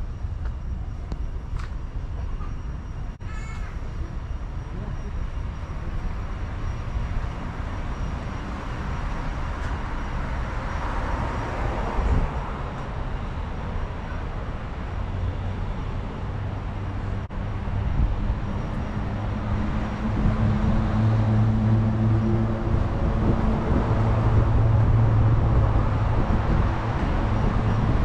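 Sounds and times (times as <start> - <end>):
road traffic passing: 0.0 - 28.0
vehicle engine hum: 0.0 - 28.0.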